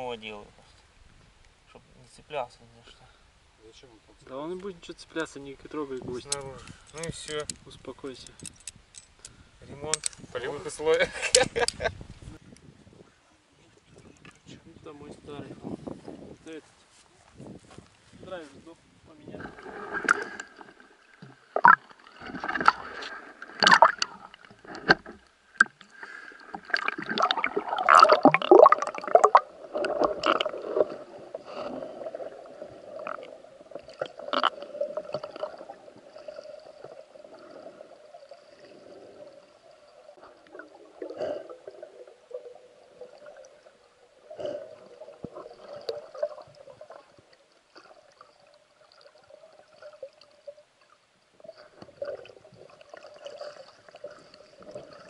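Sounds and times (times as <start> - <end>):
water splashing and gurgling: 19.2 - 55.0
muffled underwater bubbling: 25.6 - 50.5.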